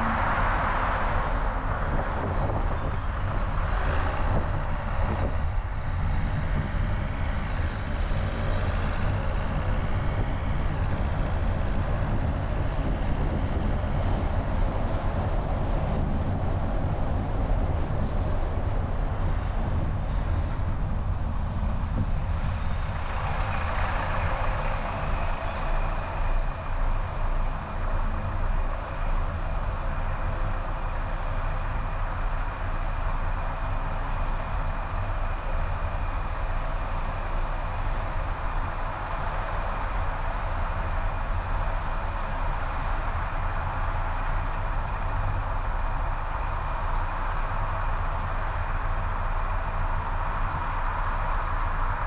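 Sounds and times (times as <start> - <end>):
wind rushing over microphone: 0.0 - 32.7
car engine and tyre rumble: 0.0 - 52.0.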